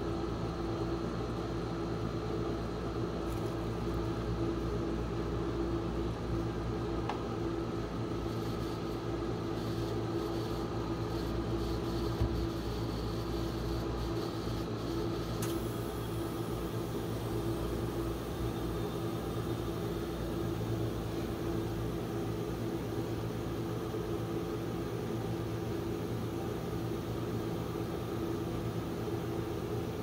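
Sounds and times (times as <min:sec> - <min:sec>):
refrigeration unit humming: 0:00.0 - 0:30.0
small click: 0:15.4 - 0:15.6.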